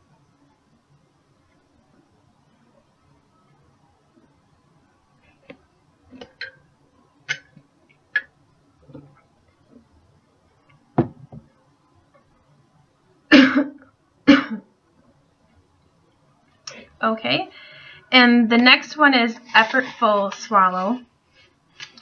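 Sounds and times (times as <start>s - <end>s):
woman coughing: 13.3s - 14.7s.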